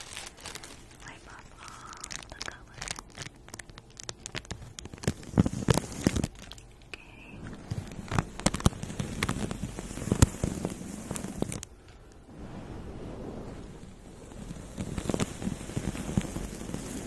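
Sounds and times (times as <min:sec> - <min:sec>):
paper crinkling and rustling: 0:00.0 - 0:06.8, 0:07.4 - 0:11.7.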